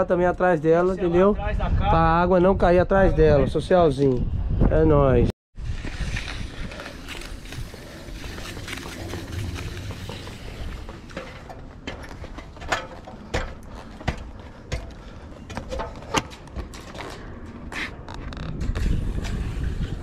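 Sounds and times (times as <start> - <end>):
wind on microphone: 1.3 - 11.1, 18.0 - 20.0.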